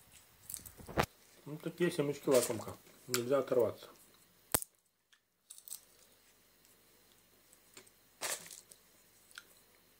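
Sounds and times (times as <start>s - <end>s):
seed shells crackling: 0.1s - 1.1s, 5.4s - 6.2s, 8.2s - 9.4s
paper bag rustling: 2.3s - 2.8s, 8.2s - 8.7s.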